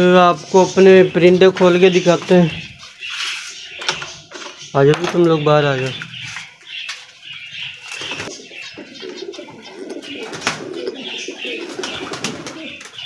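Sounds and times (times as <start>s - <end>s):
doves cooing: 5.8s - 13.0s.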